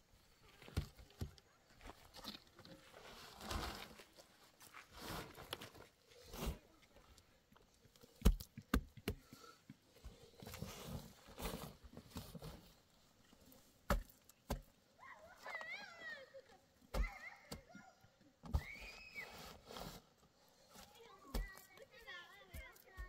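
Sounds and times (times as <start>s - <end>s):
hands scraping and patting earth: 0.4s - 14.8s, 18.5s - 23.0s.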